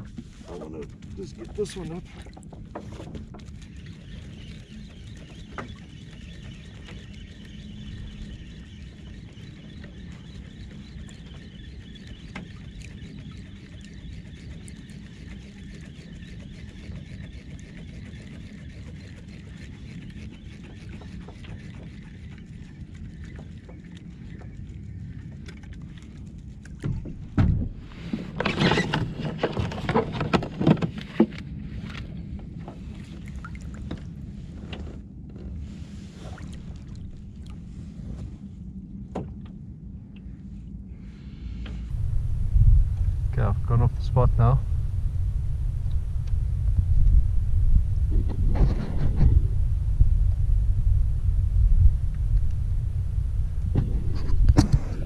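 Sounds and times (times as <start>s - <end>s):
fishing reel whirring: 3.6s - 24.6s.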